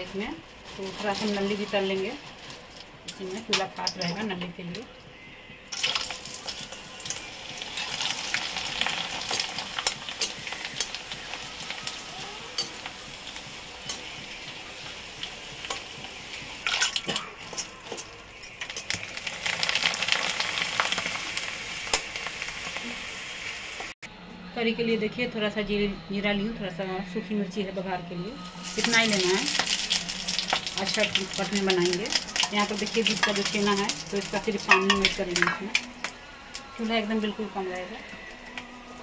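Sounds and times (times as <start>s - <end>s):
food sizzling in hot oil: 5.7s - 24.0s, 28.4s - 39.0s.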